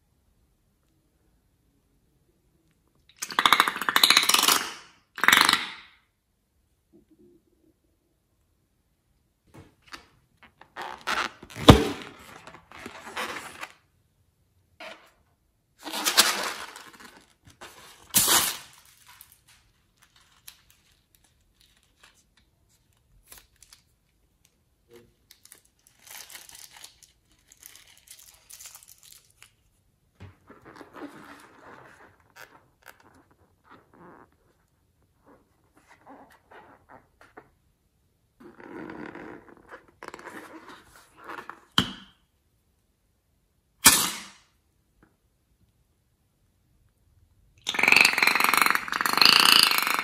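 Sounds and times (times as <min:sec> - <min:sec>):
rubber balloons rustling: 0:10.6 - 0:13.9
slime being squeezed out: 0:43.8 - 0:44.4, 0:47.6 - 0:50.0.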